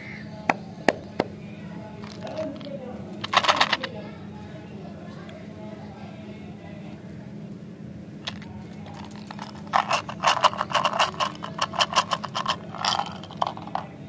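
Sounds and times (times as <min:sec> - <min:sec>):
gumballs rattling out of dispenser: 0:02.0 - 0:03.9, 0:08.2 - 0:13.9.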